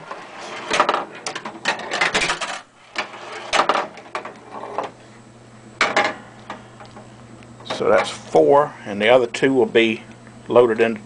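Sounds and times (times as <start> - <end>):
pinball coils kicking: 0.0 - 5.0, 5.8 - 6.2
low steady hum: 0.0 - 11.0.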